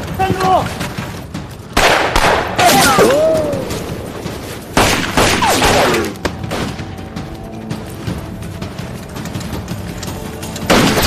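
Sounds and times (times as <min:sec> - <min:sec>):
pistol shots with echo: 0:01.8 - 0:03.1.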